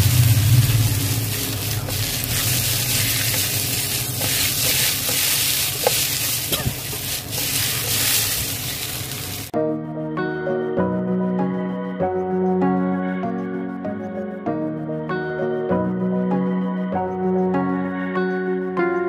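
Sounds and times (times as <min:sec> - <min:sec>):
potato slices sizzling in oil: 0:00.0 - 0:09.6
soft music: 0:09.4 - 0:19.0.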